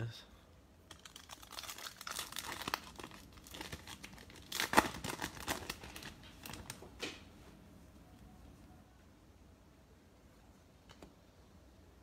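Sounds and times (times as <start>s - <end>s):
wrapper tearing and crinkling: 0.9s - 6.9s.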